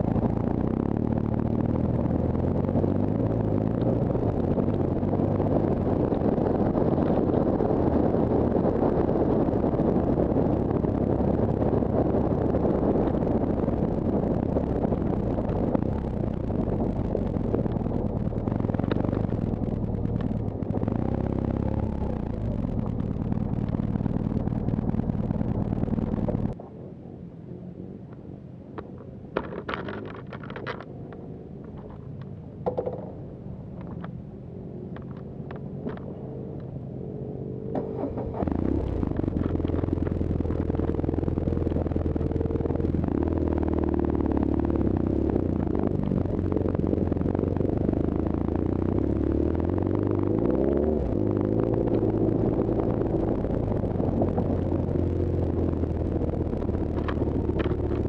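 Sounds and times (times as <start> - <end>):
motorcycle engine running: 0.0 - 26.6, 32.6 - 58.0
small clicks and handling noises: 28.8 - 34.2, 34.8 - 36.8, 56.8 - 58.0.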